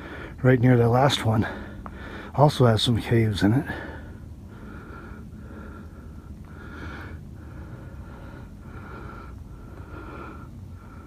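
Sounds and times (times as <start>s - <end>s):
person breathing hard through nose: 0.0s - 0.4s, 1.4s - 2.4s, 3.6s - 11.0s.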